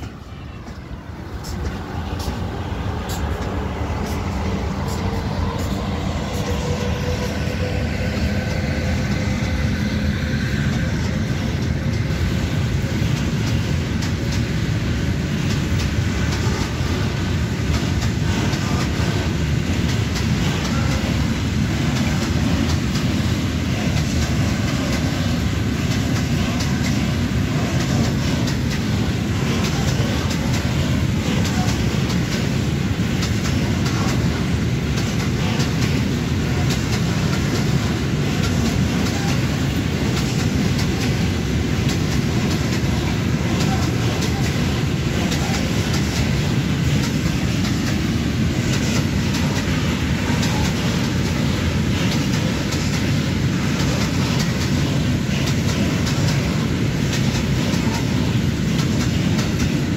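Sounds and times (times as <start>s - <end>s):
electric locomotive whine: 0.0s - 59.9s.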